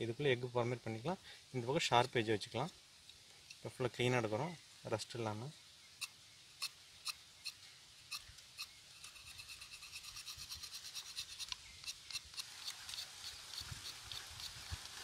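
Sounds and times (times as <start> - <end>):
knife scraping bark off twig: 7.5 - 15.0.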